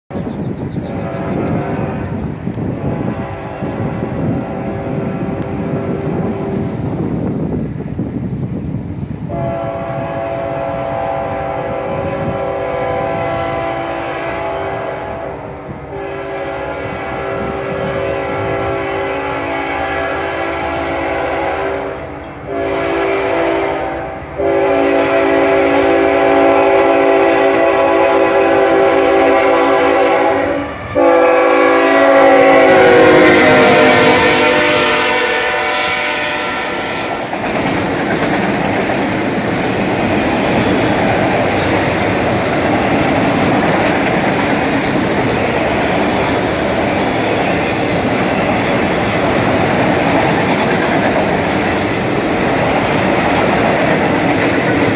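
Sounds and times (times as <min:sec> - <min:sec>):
locomotive horn blasts: 0:09.3 - 0:37.2
freight cars rolling and clacking: 0:37.2 - 0:54.9.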